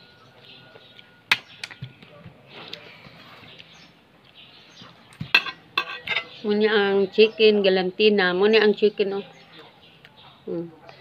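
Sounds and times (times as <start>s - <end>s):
tableware clinking on plate: 5.3s - 6.4s.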